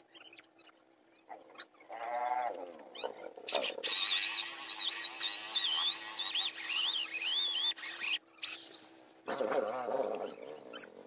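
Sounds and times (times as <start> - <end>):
cordless drill boring into wood: 3.8 - 8.6.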